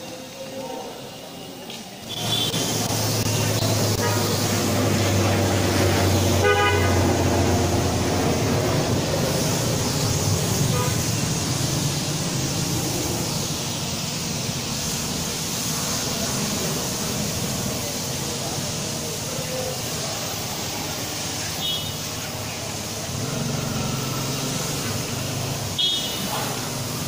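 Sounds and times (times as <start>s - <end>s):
pressure washer spray hiss: 0.0s - 27.0s
vehicle horn honk: 2.1s - 2.9s, 3.9s - 4.4s, 6.4s - 7.2s, 10.6s - 11.2s, 21.6s - 22.0s, 25.8s - 26.3s.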